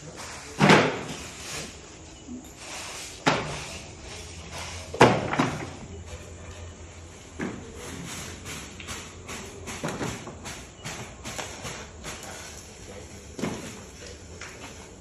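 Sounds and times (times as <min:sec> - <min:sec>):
loud knocks of hard objects: 0:00.6 - 0:01.2, 0:05.0 - 0:05.7.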